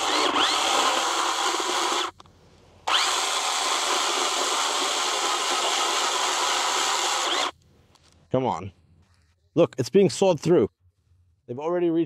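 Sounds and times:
battery chainsaw cutting: 0.0s - 2.2s, 2.8s - 7.6s.

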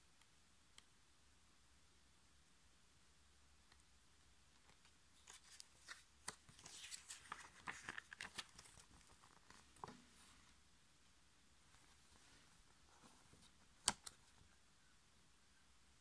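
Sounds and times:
paper pages turning: 4.6s - 10.6s.

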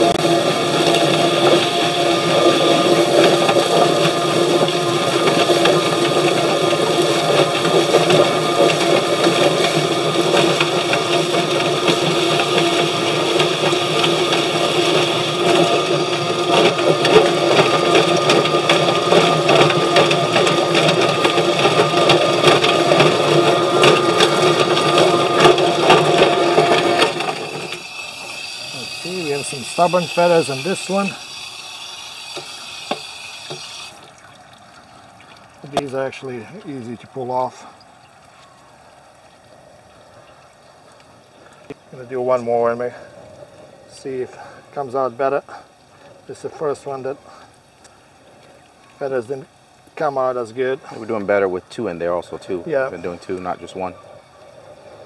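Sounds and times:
plucker motor humming: 0.0s - 34.3s
hose spraying water: 0.0s - 37.8s.

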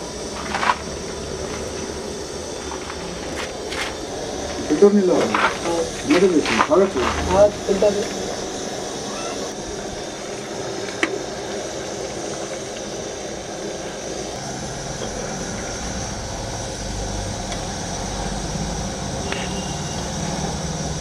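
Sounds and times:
gas stove burner hissing: 0.0s - 21.0s.

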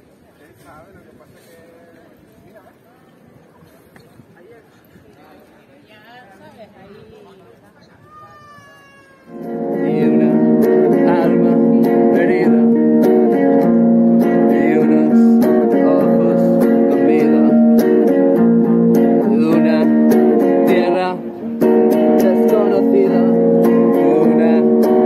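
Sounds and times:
acoustic guitar strumming: 9.3s - 25.0s.

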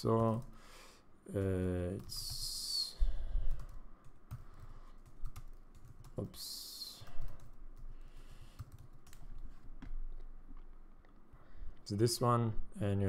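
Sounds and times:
keyboard typing: 0.0s - 0.6s, 3.4s - 6.4s, 7.0s - 10.2s.

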